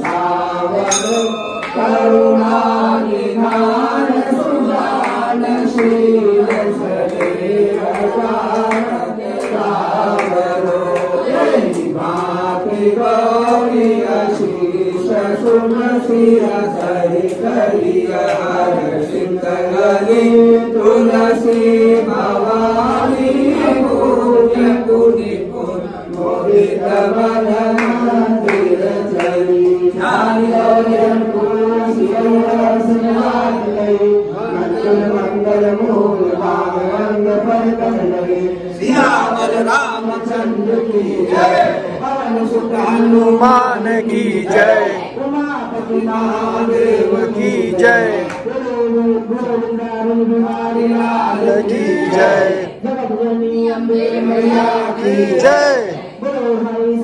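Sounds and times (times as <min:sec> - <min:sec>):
group singing a hymn: 0:00.0 - 0:57.0
sharp beats keeping time: 0:00.8 - 0:04.1.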